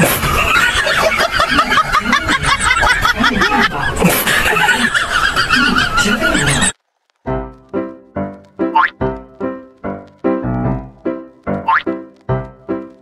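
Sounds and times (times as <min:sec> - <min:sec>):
people laughing: 0:00.0 - 0:06.7.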